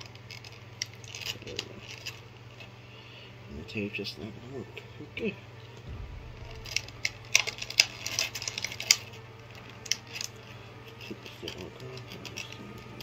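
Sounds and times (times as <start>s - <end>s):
low steady hum: 5.9s - 9.2s.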